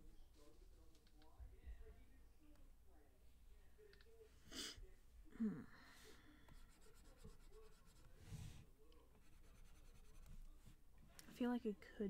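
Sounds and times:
stylus scratching on tablet: 0:06.5 - 0:10.5.

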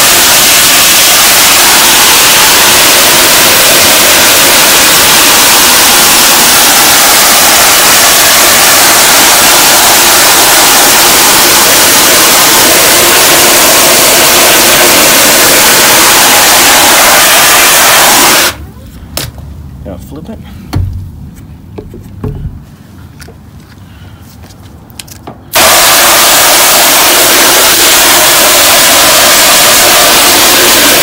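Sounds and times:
hose nozzle spraying water: 0:00.0 - 0:18.6, 0:25.5 - 0:31.0.

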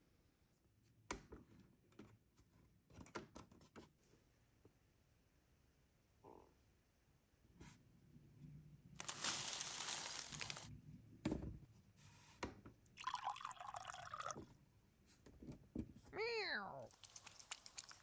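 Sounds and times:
plastic rustle: 0:09.0 - 0:10.8, 0:16.9 - 0:18.0.

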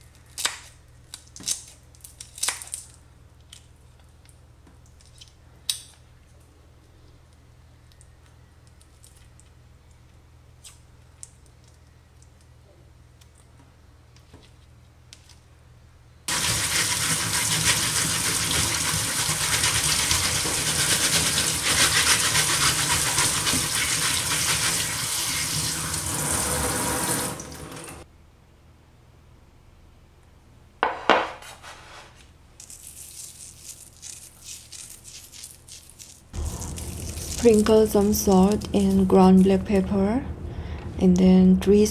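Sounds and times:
tap water running into sink: 0:16.3 - 0:28.0.

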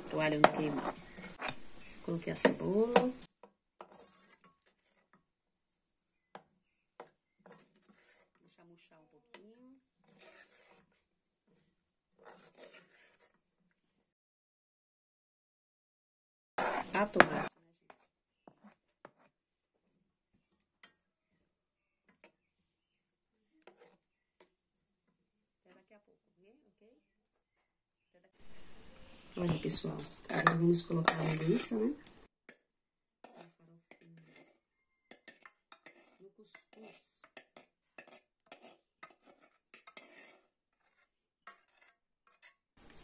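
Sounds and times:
metal spoon scraping frying pan: 0:00.0 - 0:05.2, 0:07.0 - 0:08.6, 0:09.2 - 0:13.4, 0:16.6 - 0:19.4, 0:23.6 - 0:24.5, 0:28.4 - 0:32.6, 0:33.2 - 0:43.0.

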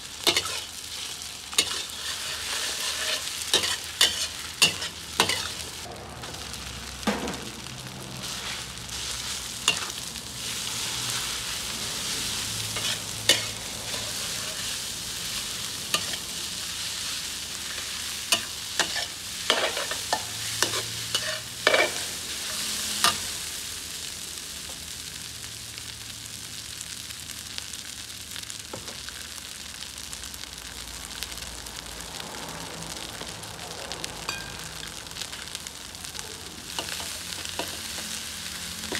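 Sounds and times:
food sizzling in a wok: 0:00.0 - 0:38.9
metal spatula scraping wok: 0:00.2 - 0:07.4, 0:08.1 - 0:23.4.

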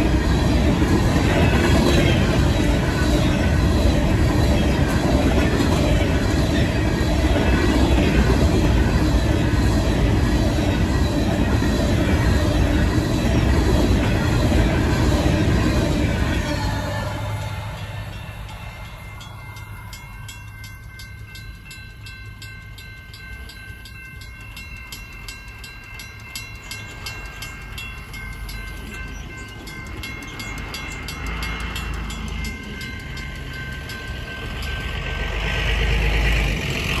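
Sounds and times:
rushing noise: 0:00.0 - 0:19.9, 0:30.2 - 0:37.0
train rumbling: 0:00.0 - 0:37.0
mechanical crossing bell striking: 0:16.8 - 0:35.5.

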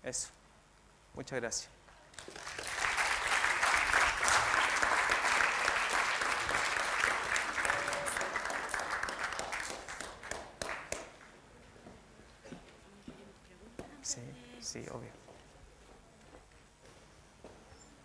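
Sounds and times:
audience applauding: 0:02.2 - 0:11.3.

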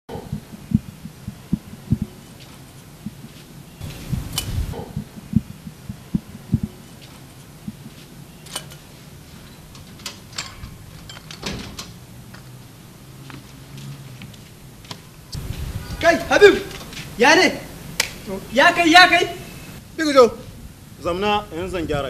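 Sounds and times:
low dull thumps: 0:00.1 - 0:02.2, 0:03.0 - 0:06.8
sheet-metal door shutting: 0:08.4 - 0:12.0
door latch clicking: 0:09.6 - 0:12.0.

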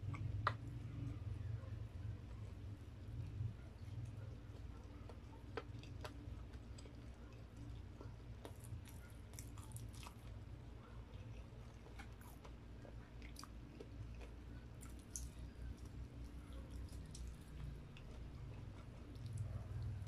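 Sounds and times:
close-up chewing: 0:02.1 - 0:20.0.

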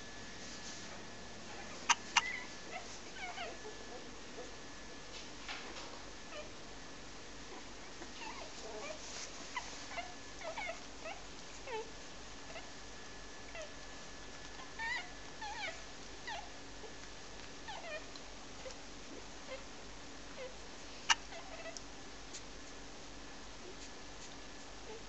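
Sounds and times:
puppies whining and squealing: 0:01.5 - 0:04.1, 0:07.6 - 0:11.9, 0:14.6 - 0:16.6, 0:17.7 - 0:18.1, 0:20.4 - 0:21.8.

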